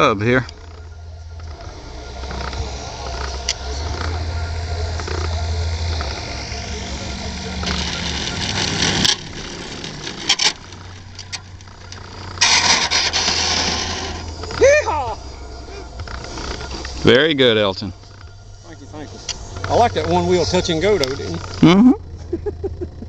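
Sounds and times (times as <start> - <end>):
rushing noise: 0.8 - 21.5
model plane motor running: 1.5 - 14.6.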